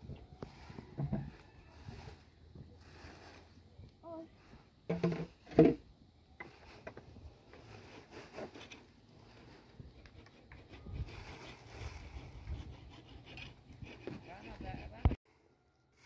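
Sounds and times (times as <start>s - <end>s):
wind rumble on microphone: 10.7s - 13.1s.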